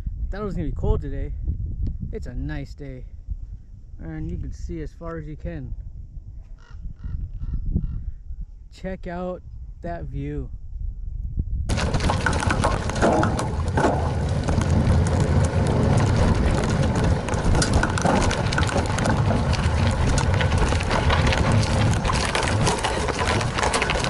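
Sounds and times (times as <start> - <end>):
wind rumble on microphone: 0.0 - 24.0
bike rattles and clicks: 11.7 - 24.0
tyres crunching over gravel: 11.7 - 24.0.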